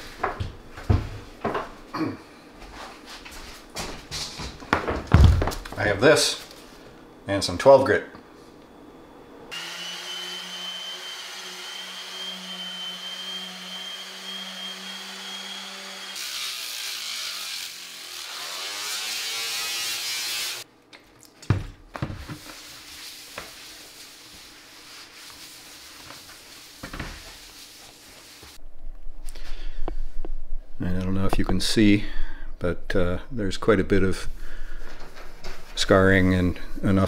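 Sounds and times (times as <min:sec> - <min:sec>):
angle grinder sanding: 0:09.5 - 0:20.6
orbital sander humming: 0:09.5 - 0:20.6
cloth rubbing on countertop: 0:22.1 - 0:28.6.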